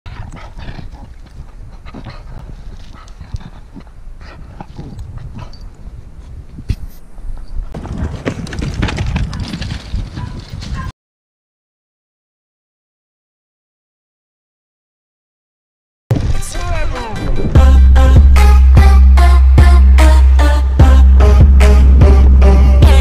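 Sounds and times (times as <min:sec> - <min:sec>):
stones clicking underfoot: 0:07.8 - 0:10.8
low rumbling noise: 0:16.1 - 0:23.0.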